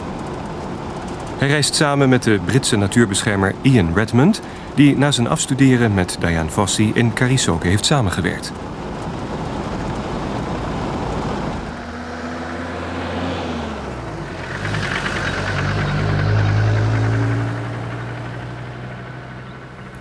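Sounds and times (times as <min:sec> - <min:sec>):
road noise rumble: 0:00.0 - 0:20.0
vehicle engine driving past: 0:09.3 - 0:20.0.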